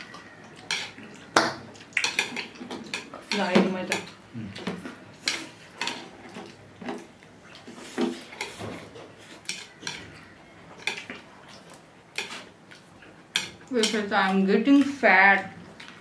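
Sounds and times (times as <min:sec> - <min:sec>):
chopsticks tapping dishes: 0:00.0 - 0:07.0, 0:09.4 - 0:10.2, 0:13.3 - 0:15.0.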